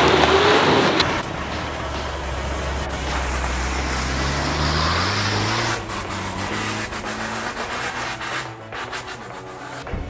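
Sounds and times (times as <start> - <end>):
engine revving in mud: 0.0 - 10.0
tyres churning mud: 0.0 - 10.0.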